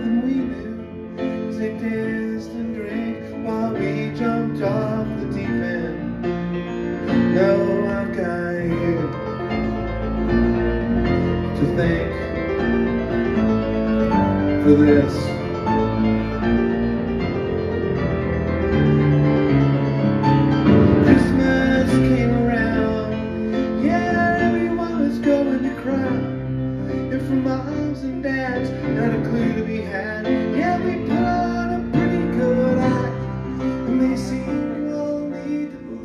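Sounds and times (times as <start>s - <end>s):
piano playing rhythmic chords: 0.0s - 36.0s.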